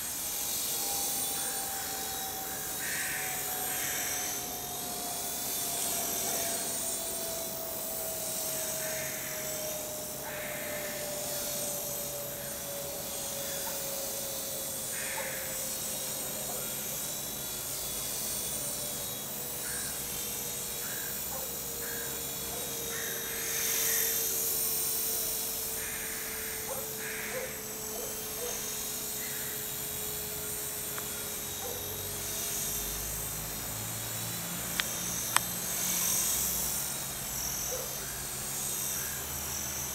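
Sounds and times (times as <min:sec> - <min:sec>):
rc helicopter rotor whine: 0:00.0 - 0:39.9.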